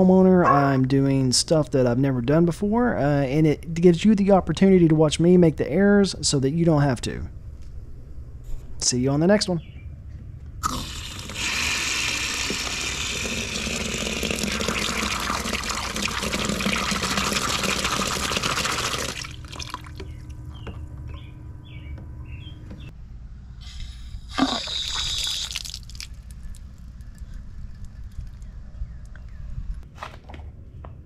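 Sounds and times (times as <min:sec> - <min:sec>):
water gushing into plastic cooler: 0:10.6 - 0:20.0, 0:24.4 - 0:26.1.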